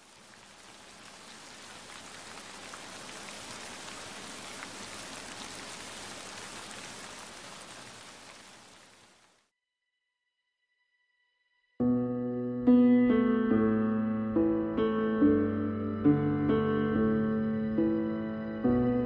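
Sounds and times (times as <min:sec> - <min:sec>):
heavy rain: 0:00.0 - 0:09.5.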